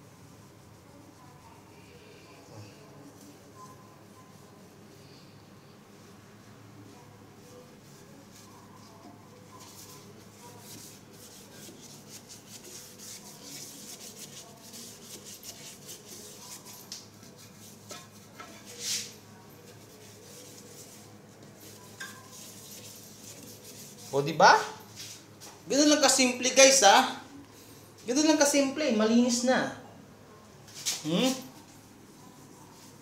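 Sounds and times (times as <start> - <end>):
scrubbing on ceramic bowl: 7.2 - 25.4.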